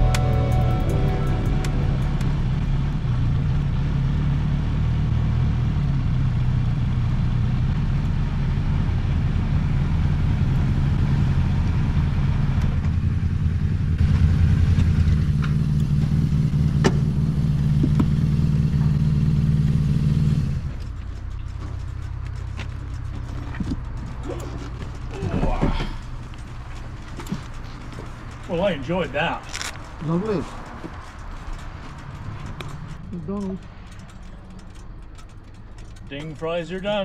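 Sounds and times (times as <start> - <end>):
motorcycle engine running: 0.0 - 37.0
road and wind hiss: 25.5 - 37.0.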